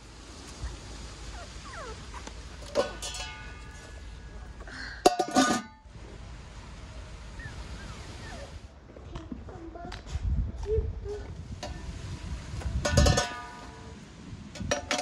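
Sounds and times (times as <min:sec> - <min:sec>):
lid clattering on pot rim: 0:02.7 - 0:03.9, 0:05.0 - 0:05.8, 0:12.8 - 0:13.6.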